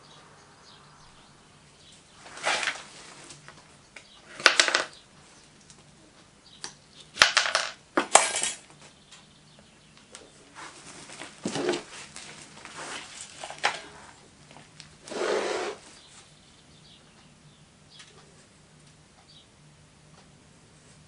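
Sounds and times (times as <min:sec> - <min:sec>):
wood and sand knocks and scrapes: 0:02.2 - 0:03.2
hand tool scratching sand: 0:02.3 - 0:02.9.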